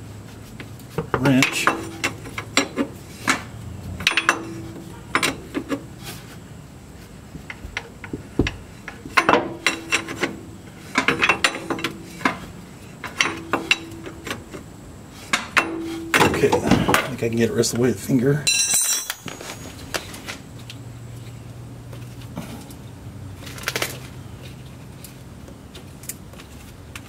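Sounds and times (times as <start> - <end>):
wrench clinking and rattling: 4.0 - 5.8, 9.2 - 12.4, 13.0 - 14.4, 18.4 - 19.9.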